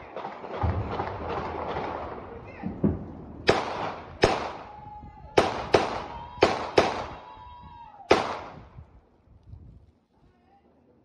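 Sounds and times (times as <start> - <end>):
gunshots with echo: 0.0 - 4.7, 5.4 - 7.2, 8.1 - 8.6.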